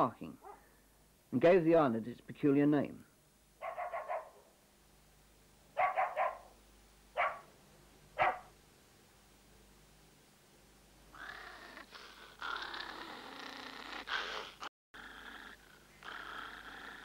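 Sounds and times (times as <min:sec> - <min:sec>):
dogs barking: 0:03.6 - 0:04.5, 0:05.8 - 0:06.6, 0:07.2 - 0:07.5, 0:08.2 - 0:08.5.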